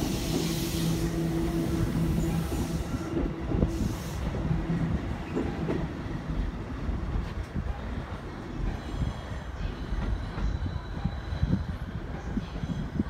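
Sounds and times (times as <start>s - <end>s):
wheels rumbling on rail: 0.0s - 13.0s.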